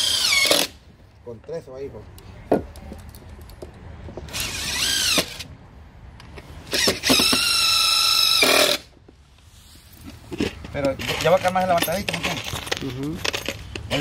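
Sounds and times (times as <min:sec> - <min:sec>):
cordless drill driving screws: 0:00.0 - 0:00.8, 0:04.3 - 0:05.5, 0:06.7 - 0:08.9.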